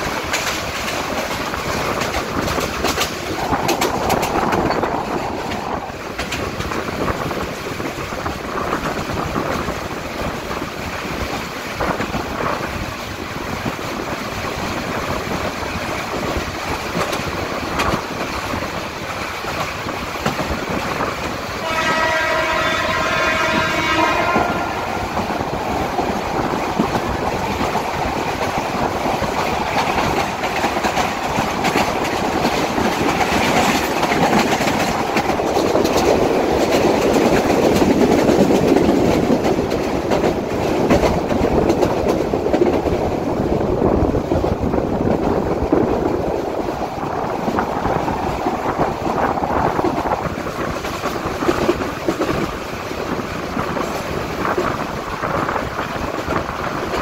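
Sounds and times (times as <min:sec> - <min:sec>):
train running on track: 0:00.0 - 0:57.0
train horn blast: 0:21.6 - 0:25.2.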